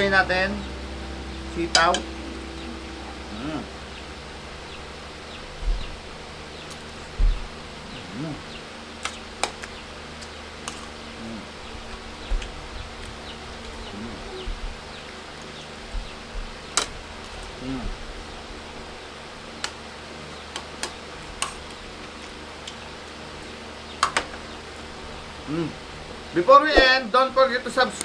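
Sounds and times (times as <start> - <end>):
faint buzzing: 0.0 - 16.8.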